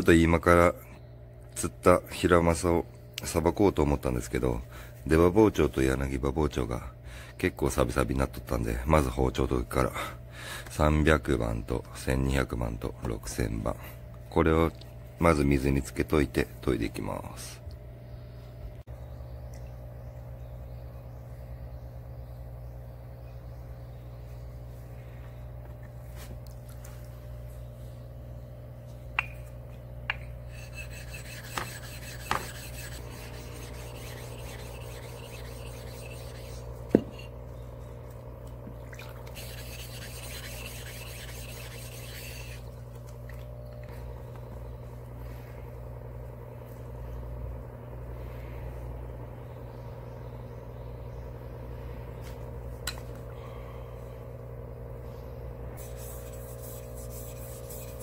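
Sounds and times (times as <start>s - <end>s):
steady low hum: 0.0s - 58.0s
stone rubbing on whetstone: 30.4s - 37.4s, 39.3s - 42.7s, 55.8s - 58.0s
knife blade on whetstone: 30.5s - 37.4s, 39.3s - 42.6s.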